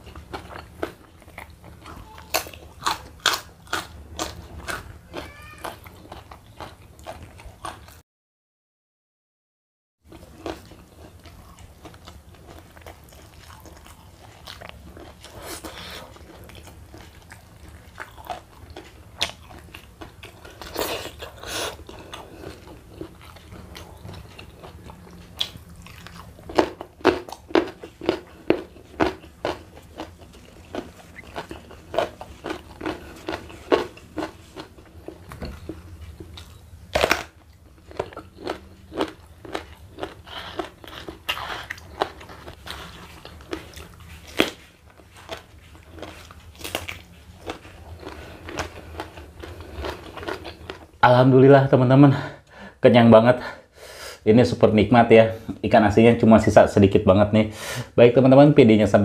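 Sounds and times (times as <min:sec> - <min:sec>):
low steady hum: 0:00.0 - 0:08.0, 0:10.1 - 0:59.0
person chewing crunchy vegetables: 0:00.0 - 0:08.0, 0:10.1 - 0:51.0.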